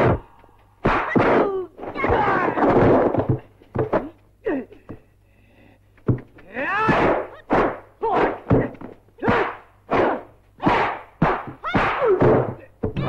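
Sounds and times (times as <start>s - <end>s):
punch and kick impacts: 0.8s - 3.4s, 6.8s - 13.0s.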